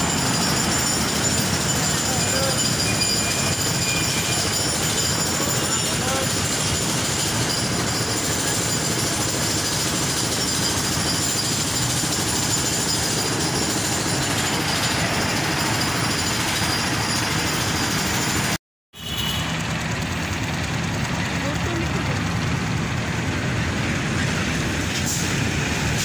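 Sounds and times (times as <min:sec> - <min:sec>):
busy street traffic: 0:00.0 - 0:26.0
diesel engine rattling close by: 0:00.0 - 0:26.0.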